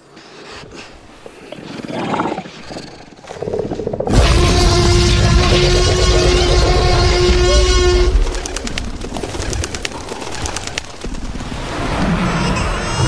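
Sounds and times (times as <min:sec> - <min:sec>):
birds chirping: 0:00.0 - 0:04.1.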